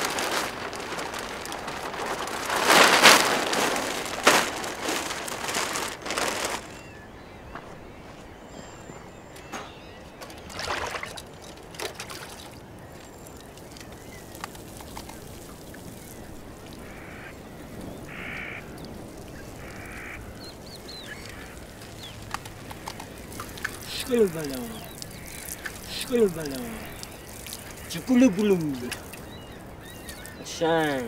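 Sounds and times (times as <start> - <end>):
plastic sheet rustling: 0.0 - 8.2, 9.4 - 31.0
waterfowl quacking: 16.8 - 17.4, 18.0 - 18.8, 19.4 - 31.0.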